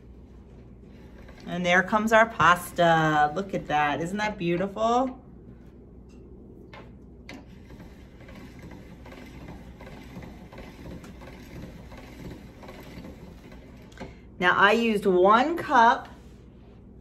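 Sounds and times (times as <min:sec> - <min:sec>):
pasta machine gears grinding: 0:00.9 - 0:03.8, 0:07.3 - 0:14.1.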